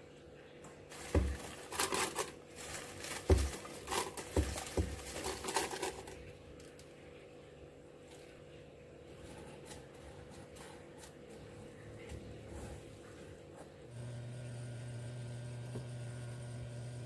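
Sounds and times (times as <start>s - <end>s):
dry rustling of leaf pieces: 0.7s - 7.1s.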